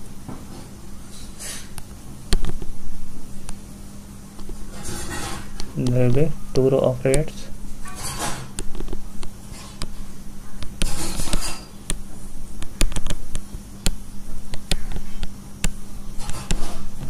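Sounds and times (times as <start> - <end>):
low steady hum: 0.0 - 17.0
sharp taps and clicks: 1.8 - 2.7, 10.6 - 16.8.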